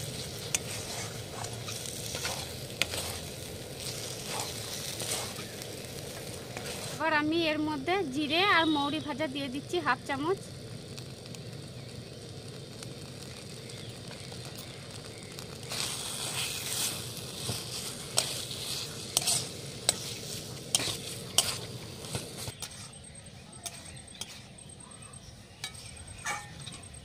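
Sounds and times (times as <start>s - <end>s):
spoon stirring and scraping pan: 0.0s - 7.0s, 15.6s - 27.0s
food sizzling in a wok: 0.0s - 27.0s
spoon clinking on metal: 25.6s - 27.0s.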